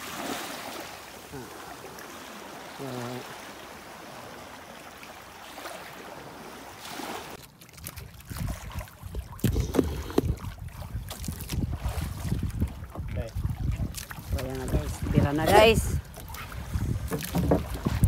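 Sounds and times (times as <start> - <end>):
water sloshing around boat: 0.0 - 18.0
wind buffeting microphone: 8.2 - 18.0.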